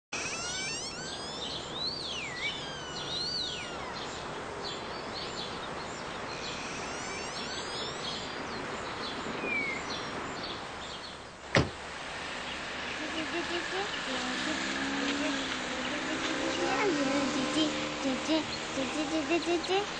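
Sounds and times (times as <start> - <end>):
outdoor background hiss: 0.1 - 19.9
birds chirping and whistling: 0.2 - 11.1
sharp knock: 11.6 - 11.8.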